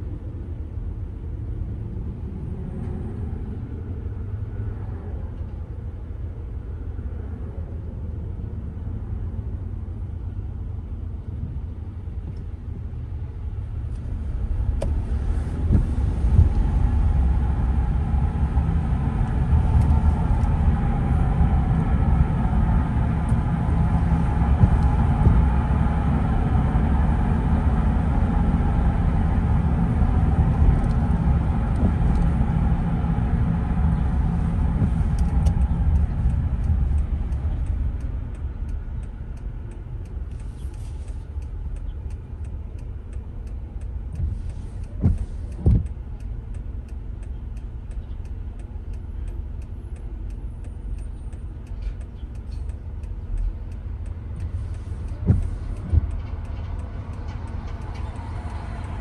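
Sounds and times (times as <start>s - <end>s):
tyres rumbling on wet road: 11.4s - 47.1s, 48.4s - 59.0s
light ticks: 34.8s - 59.0s.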